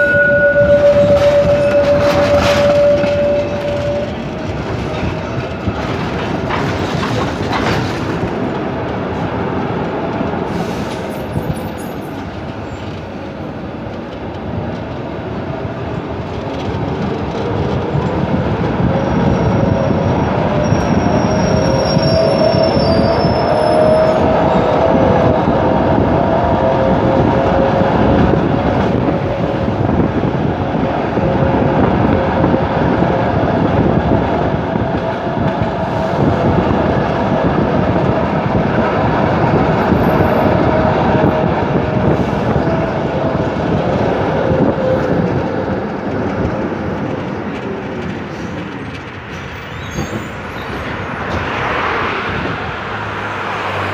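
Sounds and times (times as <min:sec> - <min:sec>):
wheels squealing: 0:00.0 - 0:08.3, 0:16.3 - 0:30.1, 0:39.4 - 0:51.6
tram rumbling on rails: 0:00.0 - 0:53.9.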